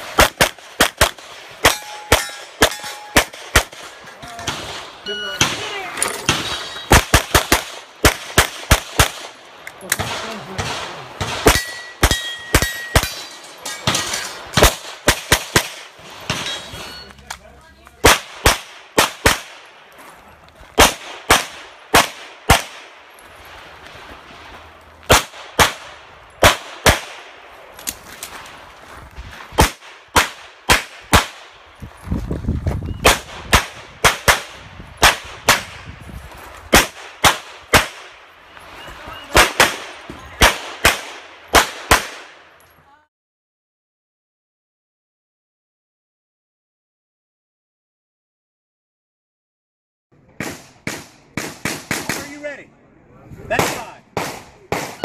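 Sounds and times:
pistol shots: 0.0 - 16.6, 18.0 - 19.7, 20.8 - 23.0, 25.1 - 27.4, 29.6 - 31.6, 33.0 - 35.9, 36.7 - 38.2, 39.3 - 42.4, 53.6 - 55.0.

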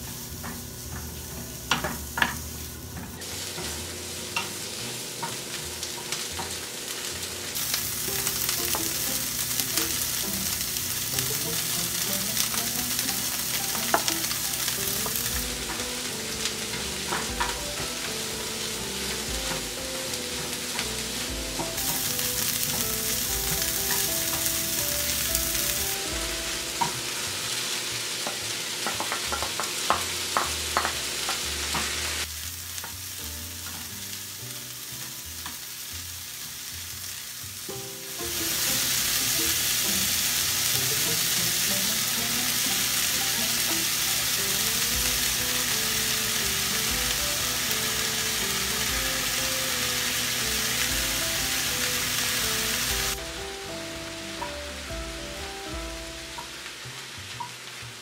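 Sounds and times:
utensil tapping on a pan: 0.0 - 3.8, 4.4 - 4.6, 12.4 - 18.2, 26.8 - 27.0, 28.2 - 32.0
food sizzling in a pan: 0.0 - 58.0
light background music: 0.1 - 58.0.

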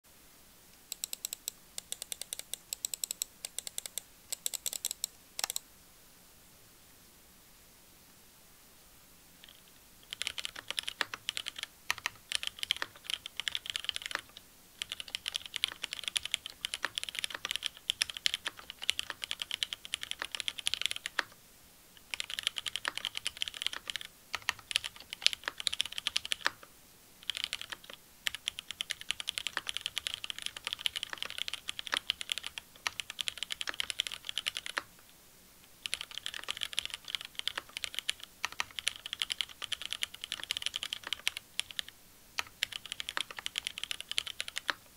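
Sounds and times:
fast typing on mechanical keyboard: 0.9 - 5.6, 9.4 - 21.3, 22.1 - 26.6, 27.2 - 34.9, 35.8 - 44.8.

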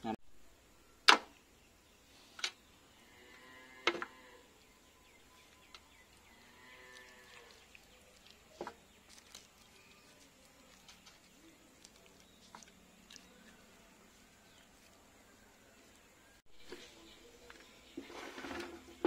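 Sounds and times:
cow mooing faintly: 6.3 - 7.7.

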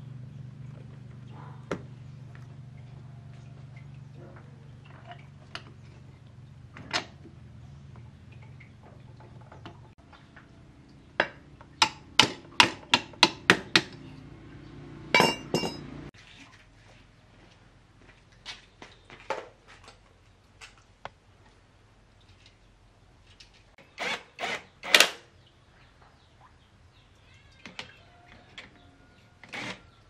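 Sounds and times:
metal striking metal: 15.1 - 16.0.

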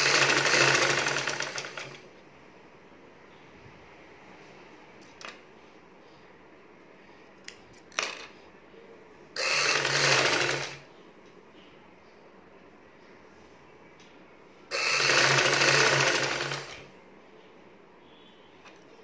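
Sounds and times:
sewing machine stitching: 0.0 - 2.0, 9.4 - 10.9, 14.7 - 16.9.

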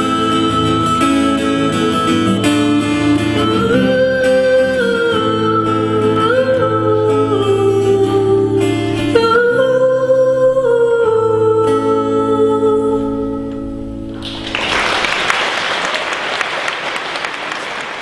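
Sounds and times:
strummed acoustic guitar: 0.0 - 12.1.

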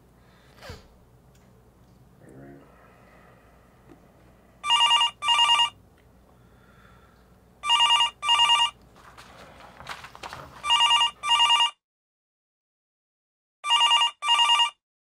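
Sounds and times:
telephone ringtone ringing: 4.6 - 5.8, 7.6 - 8.8, 10.6 - 11.8, 13.6 - 14.8.

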